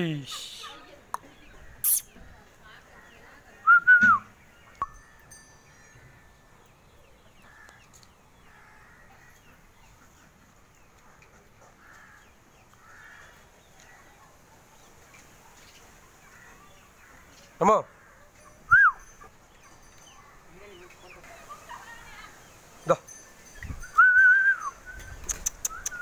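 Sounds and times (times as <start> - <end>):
soft bird chirps: 0.2 - 10.2, 18.3 - 26.0.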